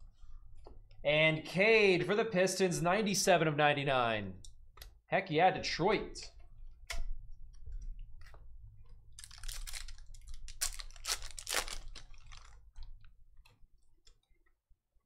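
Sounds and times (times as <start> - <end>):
plastic wrappers crinkling: 9.1 - 13.1.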